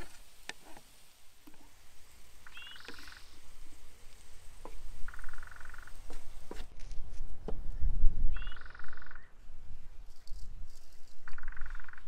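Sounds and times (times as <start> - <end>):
frogs croaking: 2.4 - 3.5, 4.9 - 6.1, 8.4 - 9.4, 11.2 - 12.0.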